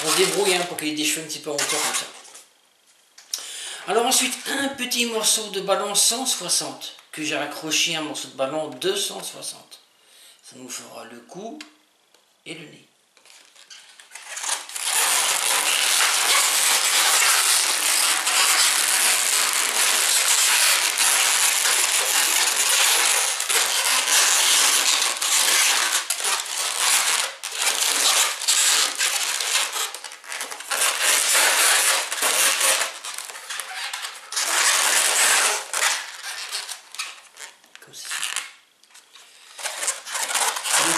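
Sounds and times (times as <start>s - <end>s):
balloons rubbing and crackling: 0.0s - 2.5s, 3.9s - 5.4s, 13.2s - 40.9s.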